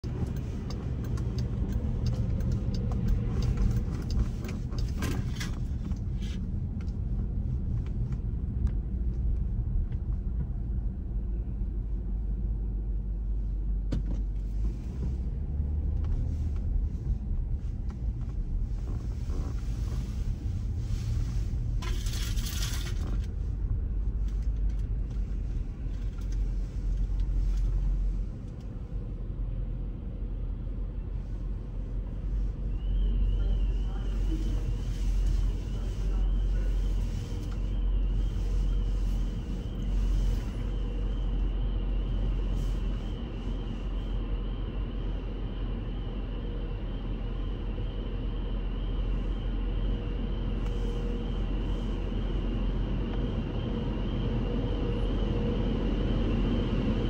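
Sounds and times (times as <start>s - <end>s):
car engine and tyre rumble: 0.0s - 57.0s.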